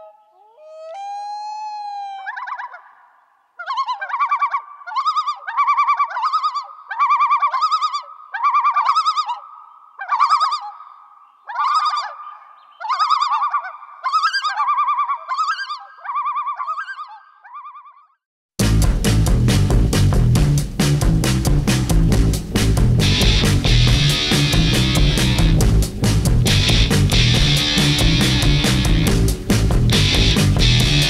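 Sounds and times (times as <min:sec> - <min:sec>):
bird laughing calls: 0:00.0 - 0:18.1.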